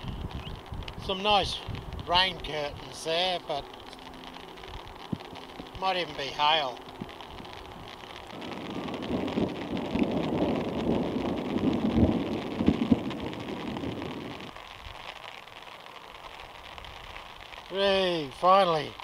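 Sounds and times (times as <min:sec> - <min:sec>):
thunder rumbling: 0:00.0 - 0:15.4
faint steady hiss: 0:00.0 - 0:19.0
sharp thunderclaps: 0:08.3 - 0:14.6.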